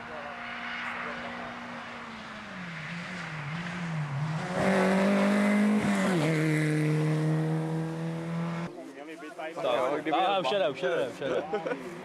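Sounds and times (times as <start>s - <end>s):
rally car engine accelerating: 0.3s - 8.7s.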